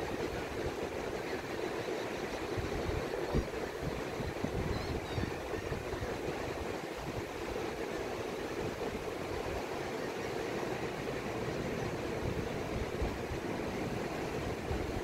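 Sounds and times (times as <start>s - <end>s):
distant surf breaking: 0.0s - 15.0s
wind buffeting microphone: 2.5s - 7.5s.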